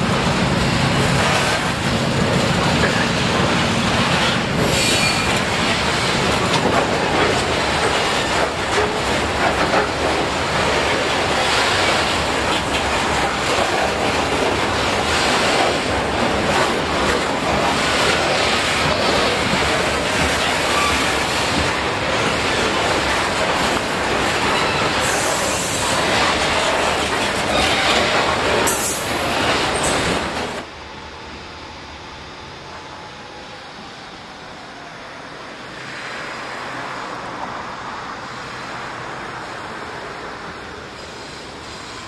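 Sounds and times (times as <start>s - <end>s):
train wheels rumbling on rails: 0.0s - 42.0s
high wheel squeals: 4.6s - 6.2s, 20.5s - 21.6s, 24.4s - 26.0s, 27.5s - 30.2s.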